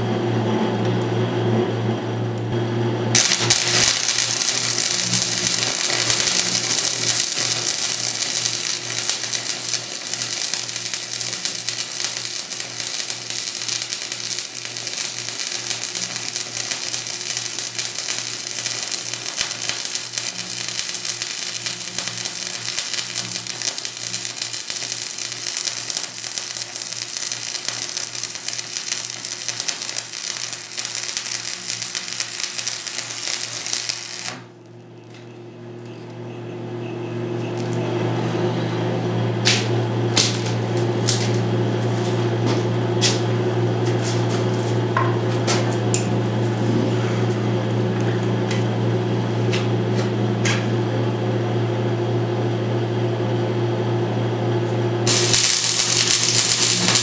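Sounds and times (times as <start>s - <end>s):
steady low hum: 0.0s - 57.0s
welding arc crackling: 3.1s - 34.9s, 37.2s - 38.2s, 39.4s - 41.5s, 55.1s - 57.0s.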